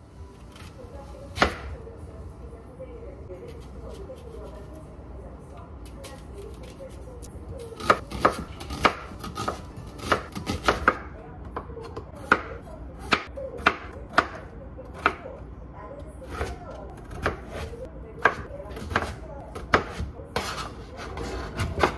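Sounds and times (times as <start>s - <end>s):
knife chopping on cutting board: 7.8s - 15.2s, 16.3s - 21.9s.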